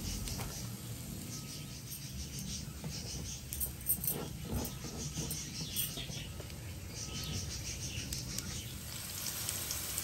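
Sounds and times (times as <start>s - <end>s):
onions sizzling in a frying pan: 0.0s - 2.2s, 6.4s - 10.0s.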